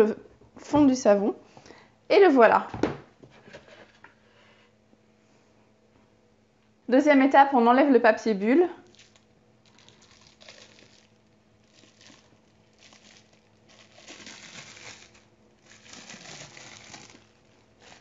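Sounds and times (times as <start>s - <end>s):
bubble wrap crinkling: 8.8s - 18.0s.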